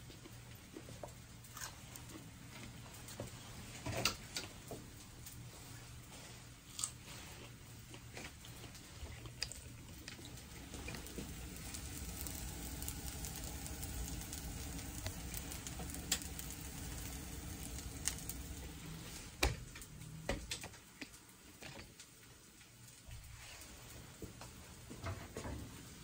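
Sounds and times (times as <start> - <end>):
potato sizzling in a skillet: 9.7 - 20.4.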